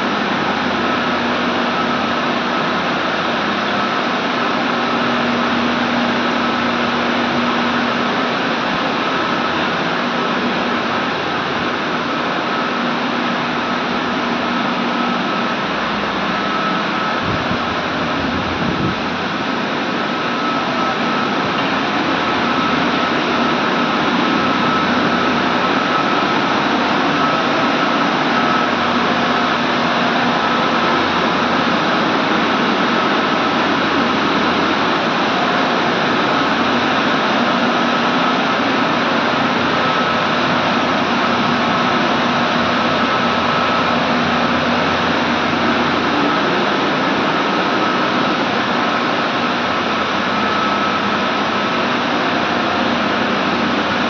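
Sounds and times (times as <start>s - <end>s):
boiler burner roaring: 0.0s - 54.0s.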